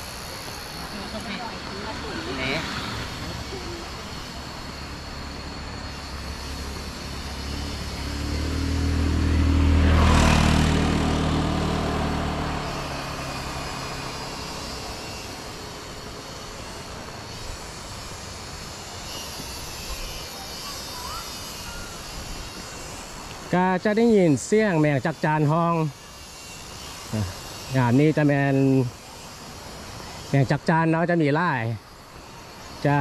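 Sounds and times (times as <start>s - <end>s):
cicadas buzzing: 0.0s - 33.0s
vehicle engine passing: 0.8s - 17.4s.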